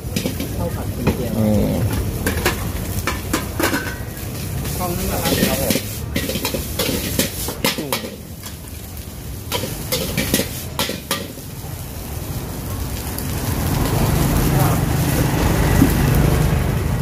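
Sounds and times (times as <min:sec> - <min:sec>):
metal spatula clanking on a wok: 0:00.0 - 0:08.6, 0:09.5 - 0:11.4
food sizzling: 0:00.0 - 0:17.0.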